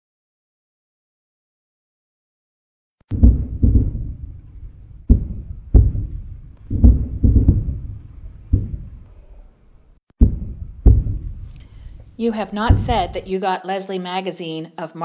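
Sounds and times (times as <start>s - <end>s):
deep heavy thuds: 3.1s - 9.3s, 10.2s - 13.3s.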